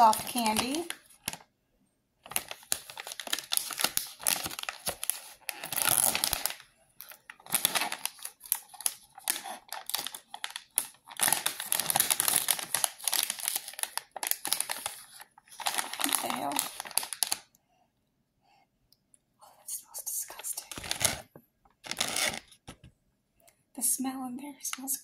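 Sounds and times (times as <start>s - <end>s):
plastic candy wrappers crinkling: 0.0s - 1.5s, 2.2s - 17.5s, 20.4s - 22.6s.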